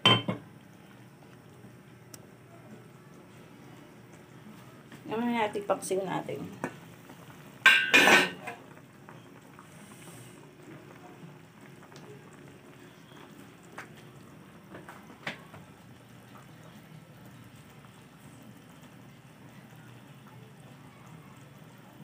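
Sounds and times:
broth simmering and bubbling: 0.0 - 22.0
metal pot clanking: 7.6 - 8.6.

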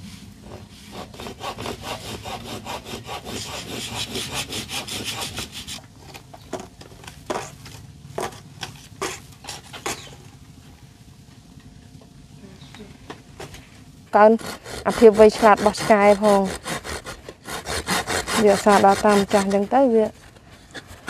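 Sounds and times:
hand saw cutting: 0.5 - 5.8, 9.0 - 10.1, 14.2 - 21.0.

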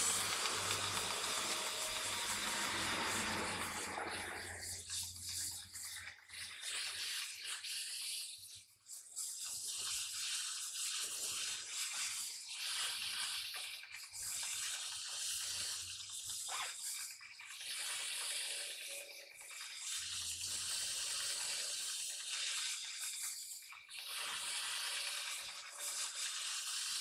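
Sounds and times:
gas torch flame hissing: 0.0 - 5.6.

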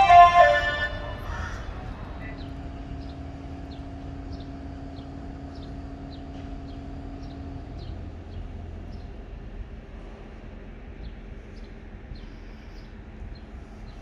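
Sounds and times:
steady hum: 0.0 - 6.1
railcars rumbling: 0.0 - 14.0.

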